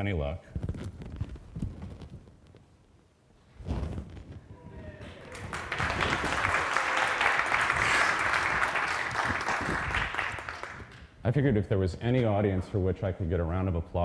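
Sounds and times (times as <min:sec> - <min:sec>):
audience applauding: 0:04.9 - 0:11.1.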